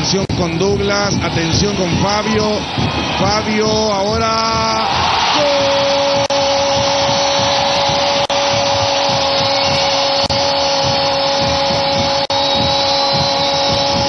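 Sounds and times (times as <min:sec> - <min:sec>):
stadium crowd noise: 0:00.0 - 0:14.0
horn-like drone: 0:05.4 - 0:14.0.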